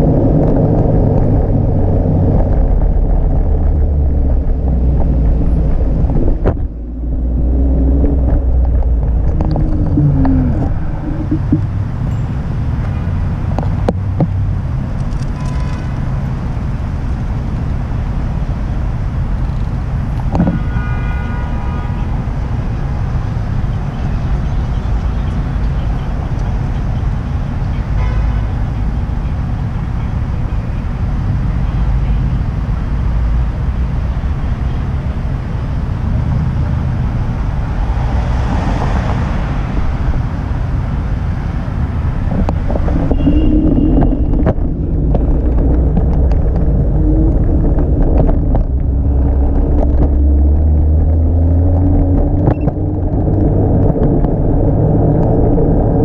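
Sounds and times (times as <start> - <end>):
city traffic noise: 0.0 - 56.0
wind rumble on microphone: 0.0 - 56.0
vehicle horn toot: 15.4 - 16.0, 20.4 - 22.2, 27.9 - 28.5, 43.0 - 44.3.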